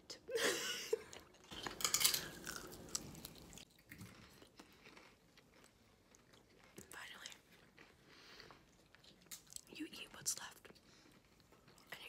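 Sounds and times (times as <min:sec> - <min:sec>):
biting and chewing food: 0:01.1 - 0:09.7.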